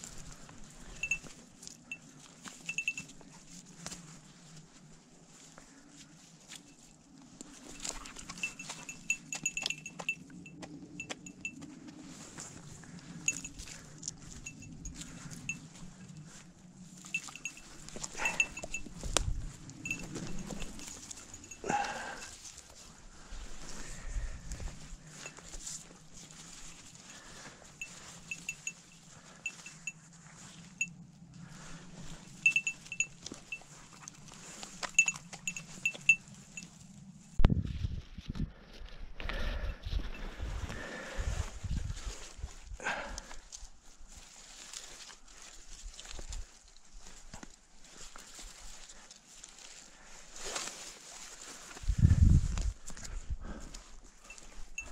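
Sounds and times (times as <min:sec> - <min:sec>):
small bell tinkling: 0:00.8 - 0:03.4, 0:07.6 - 0:11.6, 0:13.2 - 0:15.7, 0:17.0 - 0:19.2, 0:19.8 - 0:22.4, 0:27.8 - 0:30.0, 0:32.3 - 0:33.8, 0:34.8 - 0:36.8, 0:54.2 - 0:54.9.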